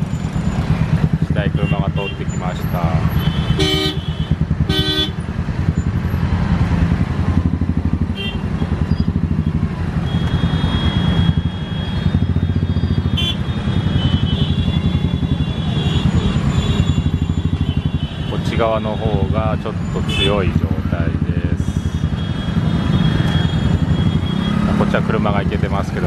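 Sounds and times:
motorcycle engines puttering: 0.0s - 26.0s
horn toot: 1.6s - 5.2s.

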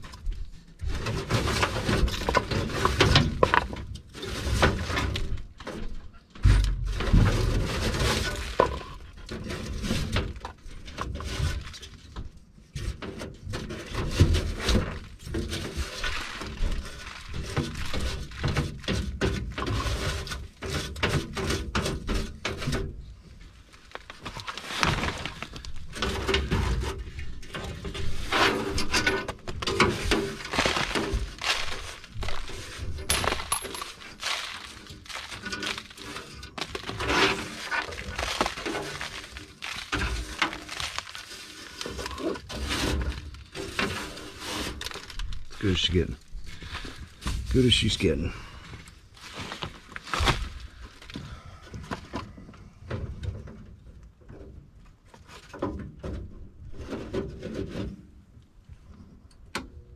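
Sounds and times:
small clinks and knocks: 31.3s - 37.0s.

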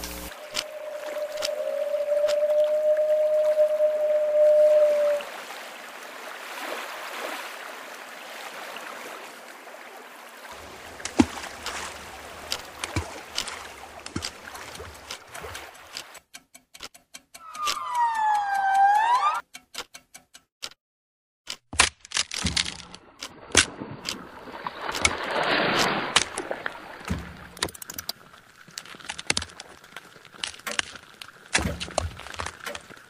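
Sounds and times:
hissing swell: 0.0s - 5.3s
faint steady high tone: 0.3s - 5.2s
swooping pitched tone: 0.3s - 5.3s, 17.4s - 19.4s
electronic clicking: 16.3s - 20.5s.

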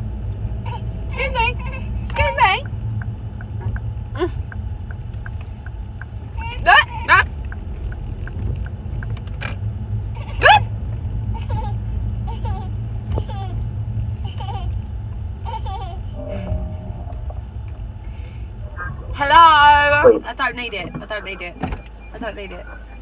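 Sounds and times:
car cabin road rumble: 0.0s - 23.0s
high rising vocal sound: 16.2s - 20.2s.

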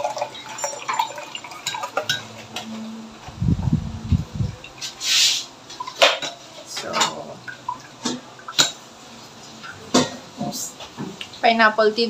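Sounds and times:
can clinking against metal strainer: 0.0s - 2.4s.

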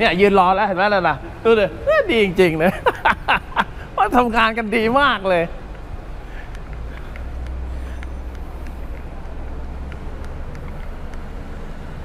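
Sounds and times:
steady low rumble: 0.0s - 12.0s
faint handling clicks: 5.7s - 11.3s.

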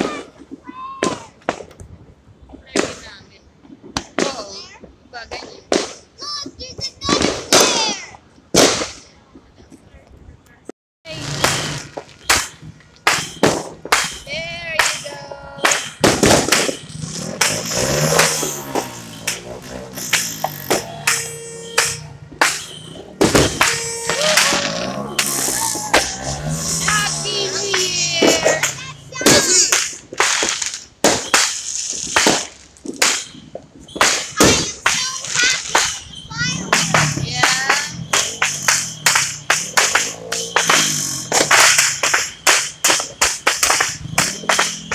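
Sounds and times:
fireworks and firecrackers banging: 0.0s - 10.1s, 11.1s - 44.9s
short pitched tones: 16.7s - 29.7s.

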